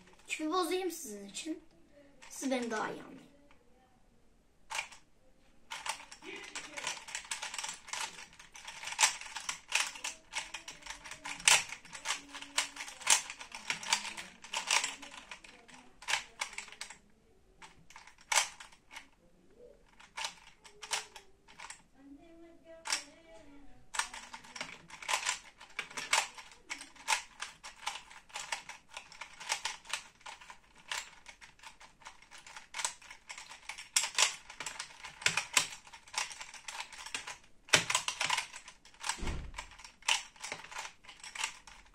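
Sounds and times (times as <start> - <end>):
puzzle cube clicking: 4.7 - 5.0, 5.7 - 17.0, 17.6 - 19.1, 19.8 - 21.8, 22.8 - 23.1, 23.9 - 41.9.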